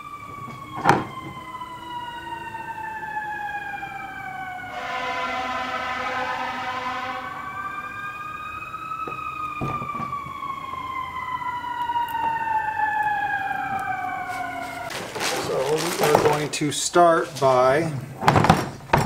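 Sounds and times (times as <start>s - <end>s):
emergency siren wailing: 0.0s - 16.6s
faint gliding tone: 4.7s - 8.2s.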